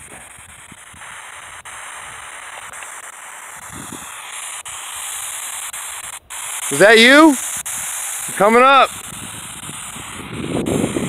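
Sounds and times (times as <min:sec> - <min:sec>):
radio static hiss: 0:00.0 - 0:11.0.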